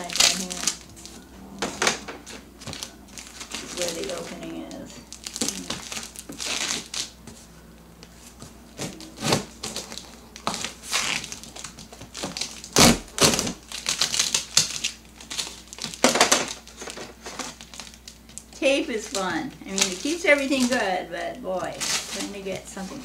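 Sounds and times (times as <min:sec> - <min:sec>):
tape crinkling: 0:00.0 - 0:23.0
shears snipping tape and cardboard: 0:12.2 - 0:14.7.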